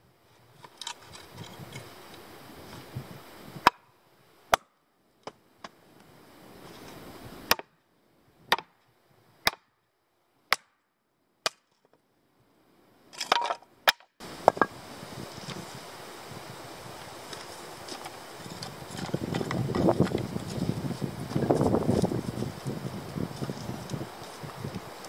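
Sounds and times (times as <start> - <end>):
steady outdoor hiss: 0.0 - 25.0
hatchet striking wooden block: 3.6 - 3.9, 8.5 - 8.7, 9.5 - 9.7, 10.5 - 10.8, 11.5 - 11.7.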